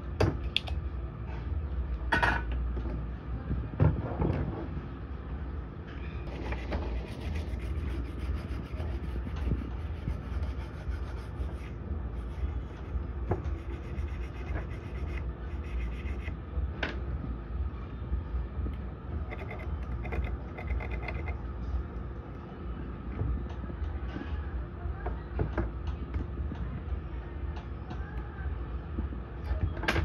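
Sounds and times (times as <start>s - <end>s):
brush scrubbing circuit board: 6.3s - 16.4s, 19.3s - 21.4s.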